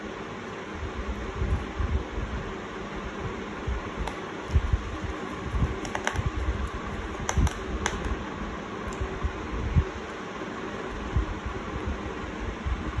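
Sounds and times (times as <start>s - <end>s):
clicks of small laptop parts: 5.8s - 6.3s, 7.2s - 8.1s.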